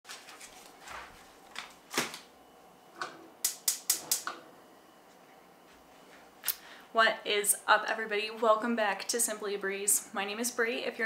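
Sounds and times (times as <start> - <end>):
gas burner igniter clicking: 3.4 - 4.4.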